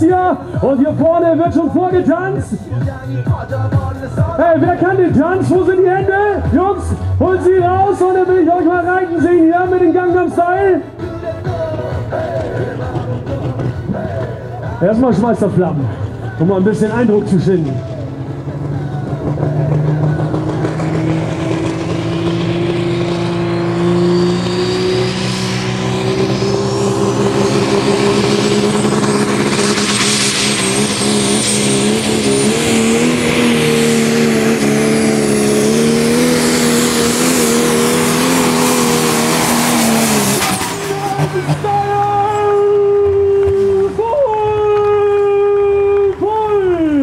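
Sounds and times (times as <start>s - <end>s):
diesel engine at full load: 0.0s - 47.0s
high turbo whistle: 19.8s - 43.9s.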